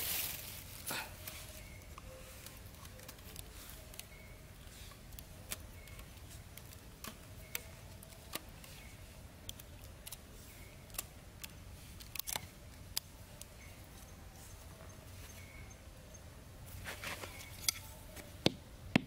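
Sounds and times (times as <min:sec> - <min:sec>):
bamboo sticks clicking and tapping: 0:01.2 - 0:14.1.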